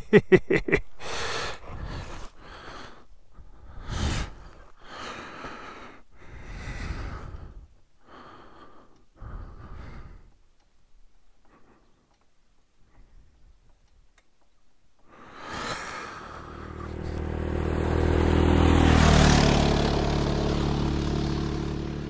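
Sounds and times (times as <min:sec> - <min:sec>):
person breathing heavily: 0:00.4 - 0:10.5, 0:11.4 - 0:12.2, 0:15.0 - 0:19.5.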